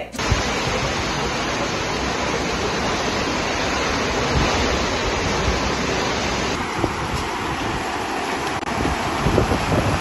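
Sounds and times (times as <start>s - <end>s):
heavy rain: 0.2s - 10.0s
strong wind: 0.2s - 10.0s.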